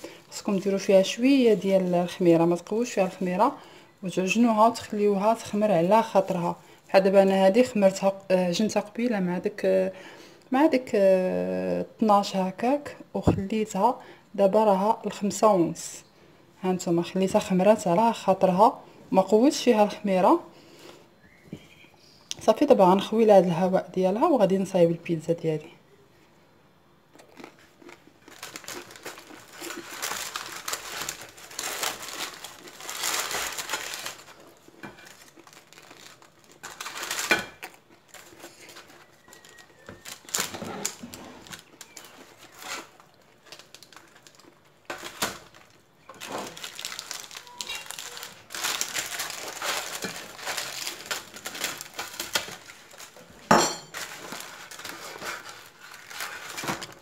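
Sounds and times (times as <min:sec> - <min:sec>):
baking paper crinkling: 0:00.0 - 0:08.0, 0:27.3 - 0:57.0.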